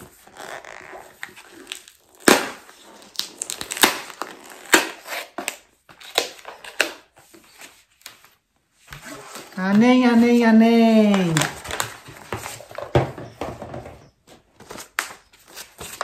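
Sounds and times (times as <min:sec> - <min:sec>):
paper packaging crackling: 0:00.0 - 0:07.5, 0:09.1 - 0:13.0.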